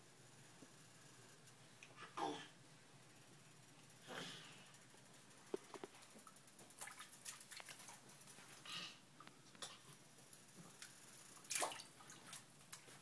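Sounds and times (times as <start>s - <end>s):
soft breathy sounds: 4.0s - 4.8s
water splashing in a sink: 6.2s - 8.4s, 10.8s - 12.9s.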